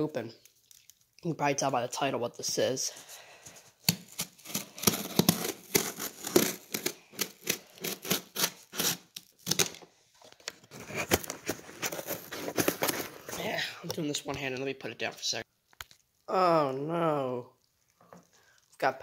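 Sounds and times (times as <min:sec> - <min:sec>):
tape and cardboard tearing: 0:03.7 - 0:13.5
scissors snipping packing tape: 0:03.8 - 0:09.8, 0:10.8 - 0:13.3.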